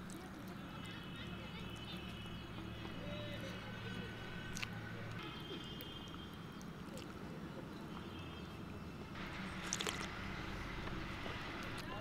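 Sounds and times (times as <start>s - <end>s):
eating food by hand: 9.2s - 10.3s, 11.2s - 12.0s
sharp slurps: 9.5s - 10.1s.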